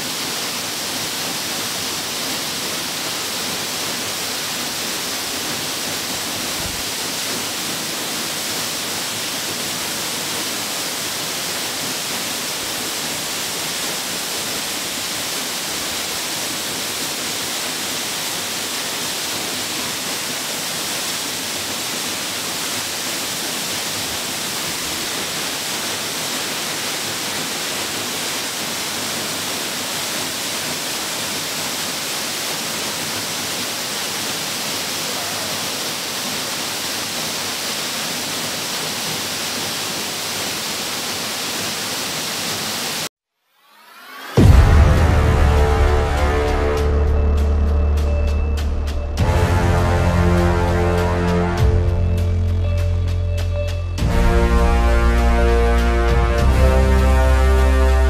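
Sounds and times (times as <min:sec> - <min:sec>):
waterfall rushing onto rock: 0:00.0 - 0:43.1.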